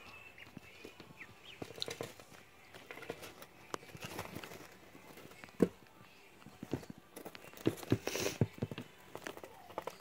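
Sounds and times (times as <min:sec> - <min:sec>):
ducklings peeping: 0:00.0 - 0:03.4
ducklings tapping and scratching: 0:00.0 - 0:10.0.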